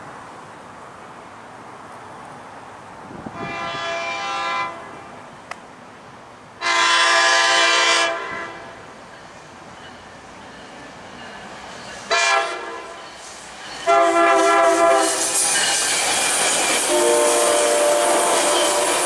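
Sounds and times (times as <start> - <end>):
train horn chord blasts: 3.3 - 5.1, 6.6 - 8.8, 12.1 - 13.0, 13.8 - 15.2, 16.8 - 19.0.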